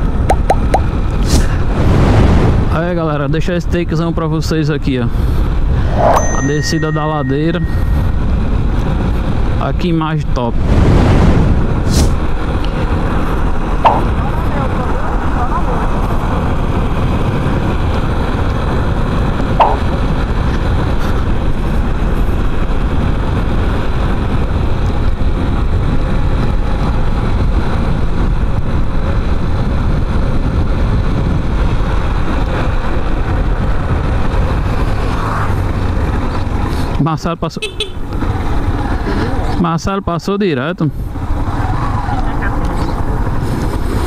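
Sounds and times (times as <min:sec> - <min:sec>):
wind rush over microphone: 0:00.0 - 0:03.1, 0:05.1 - 0:37.0
sharp knock: 0:13.8 - 0:14.1, 0:19.6 - 0:19.8.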